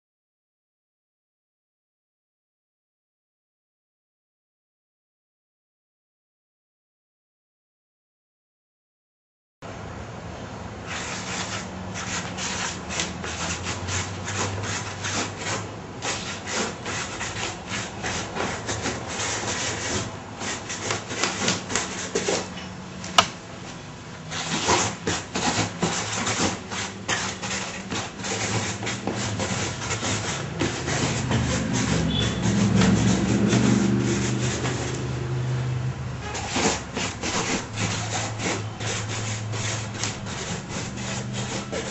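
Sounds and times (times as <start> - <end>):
pen scratching on paper: 10.9 - 22.5, 24.3 - 35.1, 36.2 - 41.9.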